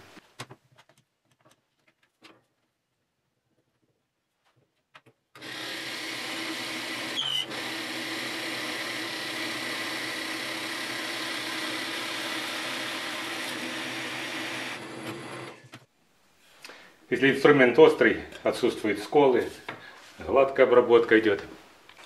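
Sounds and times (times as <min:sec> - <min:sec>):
drill press boring wood: 0:05.4 - 0:15.8.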